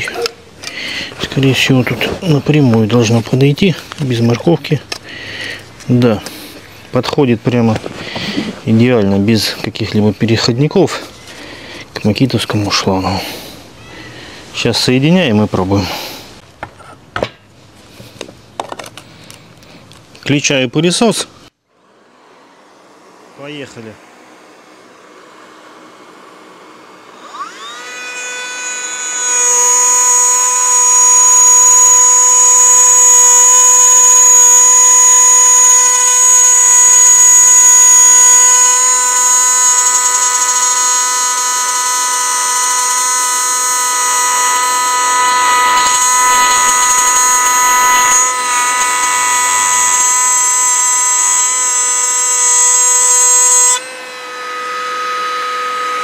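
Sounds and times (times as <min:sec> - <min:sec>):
router whining while cutting wood: 0:00.0 - 0:14.1, 0:21.8 - 0:56.0
cordless vacuum running: 0:21.8 - 0:56.0.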